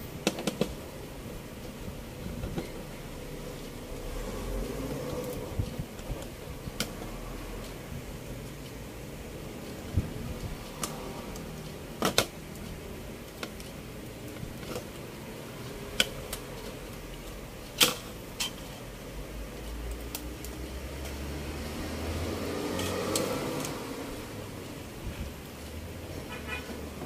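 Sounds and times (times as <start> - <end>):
sharp clicks and taps: 5.1 - 7.2.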